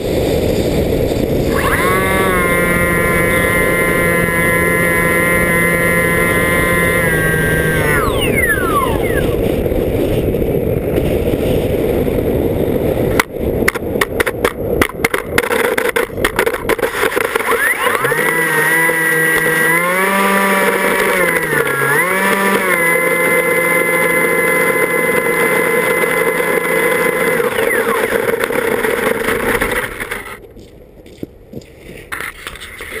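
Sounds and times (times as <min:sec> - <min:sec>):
wind rush and buffeting: 0:00.0 - 0:17.5
model aircraft motor hum: 0:00.8 - 0:10.6, 0:15.6 - 0:30.4.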